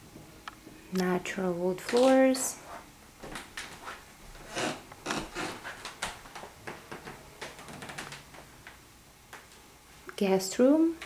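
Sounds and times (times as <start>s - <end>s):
footsteps on hardwood floor: 5.1s - 7.6s.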